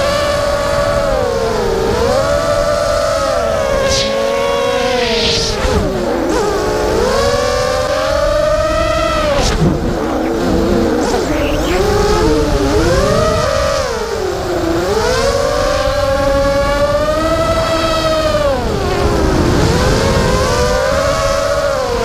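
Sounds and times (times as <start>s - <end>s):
quadcopter motors whining: 0.0s - 22.0s
wind noise: 0.0s - 22.0s.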